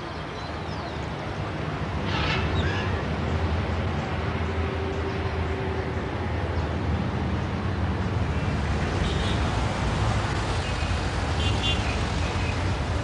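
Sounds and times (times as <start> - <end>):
city traffic rumble and hiss: 0.0 - 13.0.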